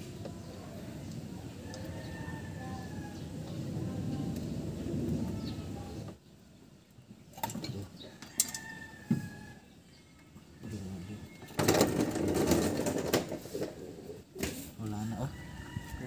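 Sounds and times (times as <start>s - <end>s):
rapid mechanical rattling: 11.5s - 13.5s.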